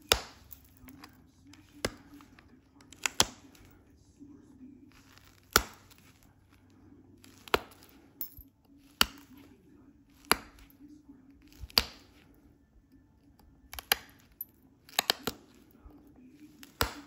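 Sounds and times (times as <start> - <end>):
stone knapping clicks: 2.9 - 3.5, 13.3 - 15.6, 16.6 - 17.0.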